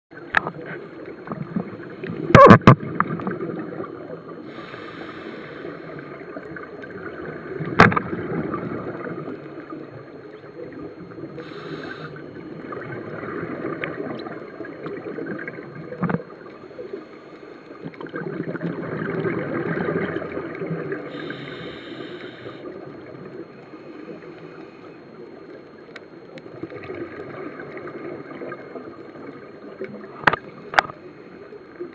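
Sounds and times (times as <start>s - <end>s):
underwater regulator breathing: 4.4s - 6.1s, 11.4s - 12.2s, 21.1s - 22.7s.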